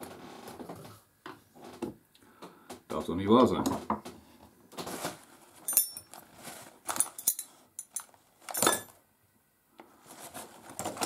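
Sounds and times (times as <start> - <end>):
metal spanners clinking: 5.7 - 6.2, 6.9 - 9.0.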